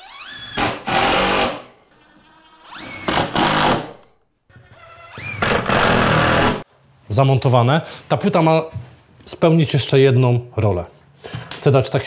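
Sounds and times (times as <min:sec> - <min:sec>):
cordless drill driving screws: 0:00.0 - 0:03.8.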